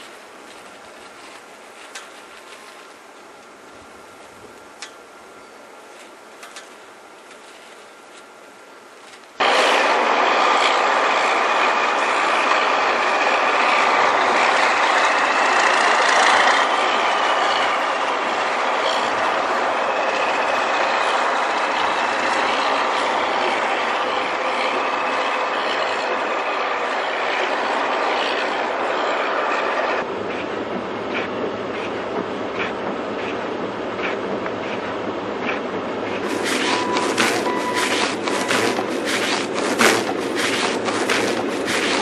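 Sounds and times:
machinery rattling: 9.4 - 42.0.

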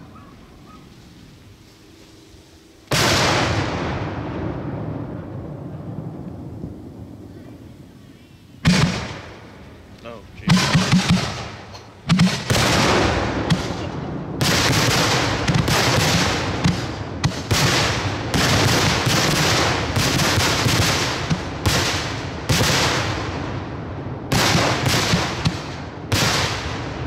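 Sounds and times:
firework shells bursting: 8.6 - 23.4.

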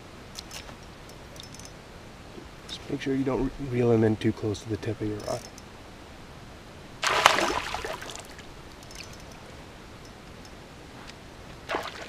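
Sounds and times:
faint steady hiss: 0.0 - 12.0
fish splashing in water: 7.0 - 9.1, 11.7 - 12.0.

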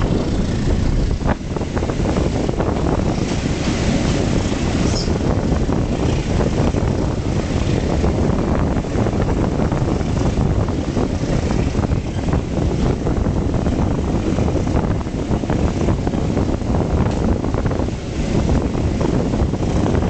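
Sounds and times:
train wheels rumbling on rails: 0.0 - 20.0
wind on microphone: 0.0 - 20.0.

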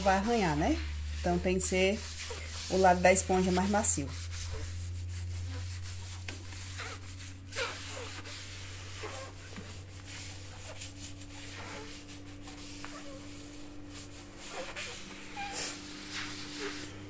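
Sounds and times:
sponge wiping glass cooktop: 0.0 - 17.0
steady low hum: 0.0 - 17.0.

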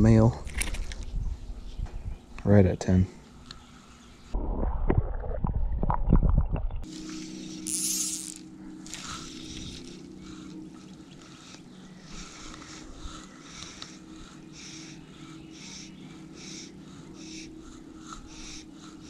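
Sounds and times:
low hum: 3.2 - 19.0
fly line hissing: 6.8 - 19.0.

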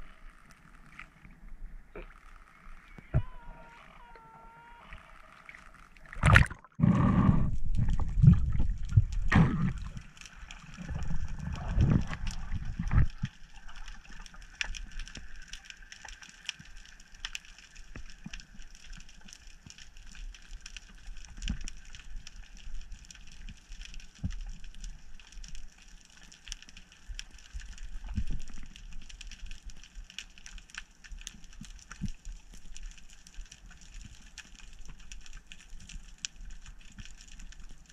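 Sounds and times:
underwater crackle of ticks: 0.0 - 6.6, 7.5 - 37.9
water splashing and gurgling: 1.8 - 16.9.

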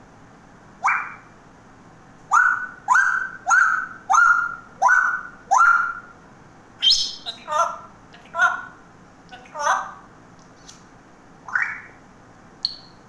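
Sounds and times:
parrot calling: 0.8 - 1.4, 2.3 - 6.2, 6.8 - 8.8, 9.4 - 10.0, 11.5 - 12.0.

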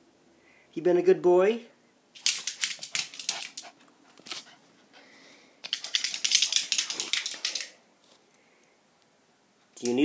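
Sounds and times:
dog claws clicking on hardwood floor: 2.2 - 4.5, 5.6 - 7.8.

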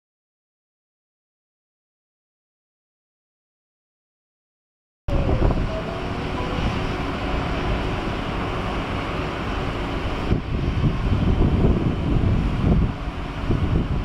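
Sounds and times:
jet engines rumbling: 5.1 - 14.0
wind buffeting microphone: 5.1 - 14.0.

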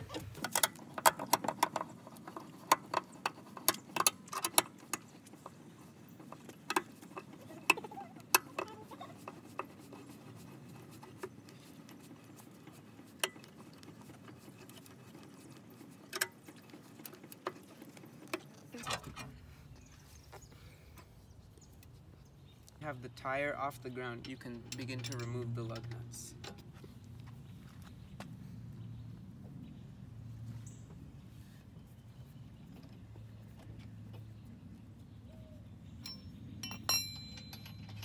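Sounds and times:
jack handle metallic clicks: 24.1 - 26.7.

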